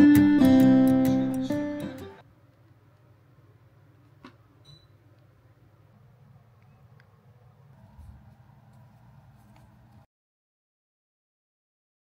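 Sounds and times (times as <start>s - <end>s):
steady low hum: 2.2s - 10.1s.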